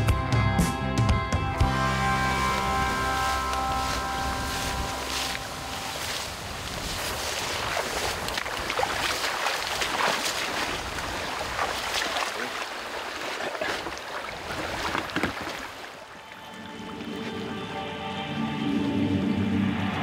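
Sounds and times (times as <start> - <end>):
footsteps through grass: 1.6 - 15.6
tall grass rustling: 1.6 - 16.0
wind on microphone: 1.7 - 12.0.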